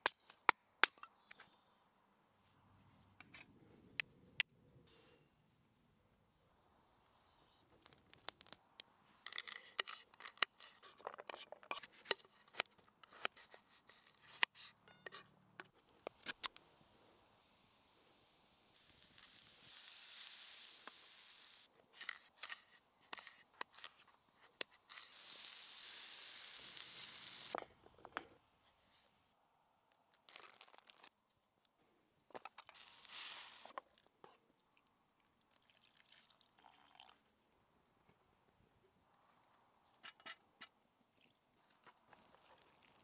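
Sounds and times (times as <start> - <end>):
fire crackling: 7.7 - 9.6, 15.9 - 21.7, 24.7 - 27.6, 32.8 - 33.7
food sizzling in metal pan: 18.7 - 21.7, 24.9 - 27.6.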